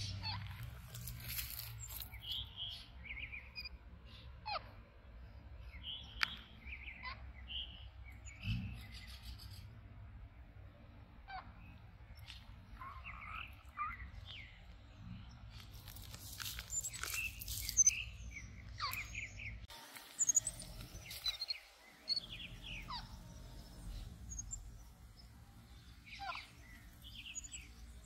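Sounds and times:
high chirps and twitters: 20.2s - 23.2s.

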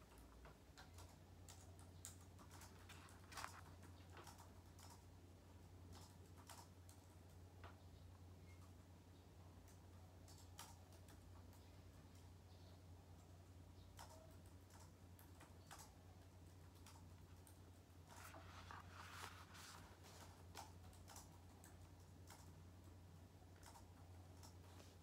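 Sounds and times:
book pages rustling: 2.6s - 3.7s, 18.1s - 20.5s.

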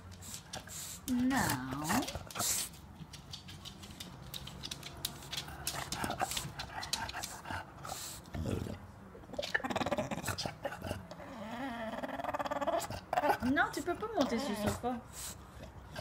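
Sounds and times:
small clicks and taps: 3.0s - 7.4s.

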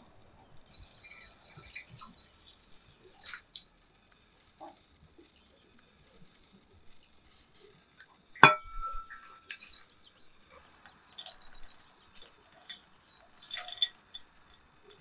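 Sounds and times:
sharp ringing clink: 8.4s - 9.4s.

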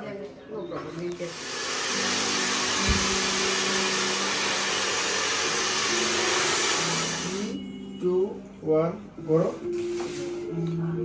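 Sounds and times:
hair dryer blowing: 1.2s - 7.6s.

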